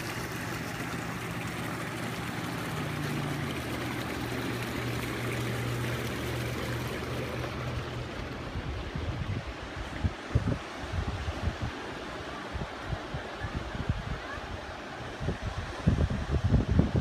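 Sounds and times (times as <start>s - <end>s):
pump motor hum: 0.0s - 13.1s
hot tub jets churning water: 0.0s - 17.0s
wind on microphone: 7.4s - 17.0s.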